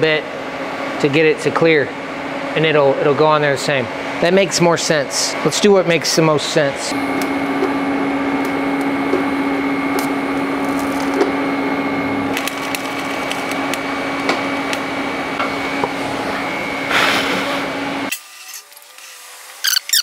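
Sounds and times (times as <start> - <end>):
constant buzz: 1.1 - 16.9
welding arc hissing and crackling: 6.9 - 11.5, 12.2 - 15.4.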